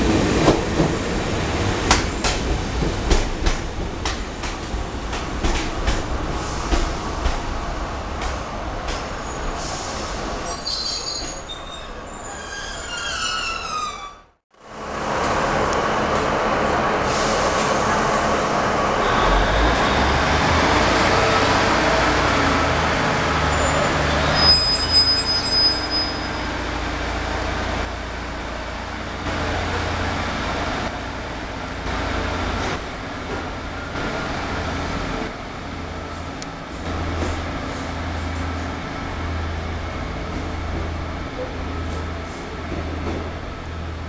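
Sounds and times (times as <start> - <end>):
high squeal: 9.4 - 14.3, 23.5 - 26.6
diesel train engine rumbling: 14.7 - 44.0.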